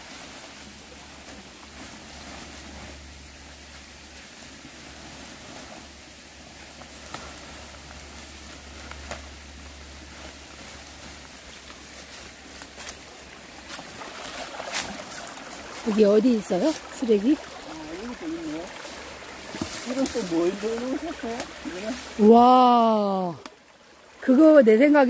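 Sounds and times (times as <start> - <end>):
dry leaves rustling: 0.0 - 24.2
mountain stream rushing: 0.0 - 25.0
plastic sheeting crackling: 4.8 - 22.8.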